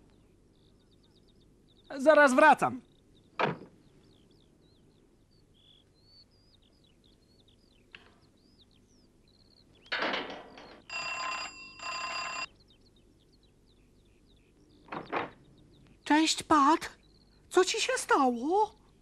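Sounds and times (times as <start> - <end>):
birds chirping faintly: 0.0 - 19.0
doorbell ringing: 10.9 - 12.5.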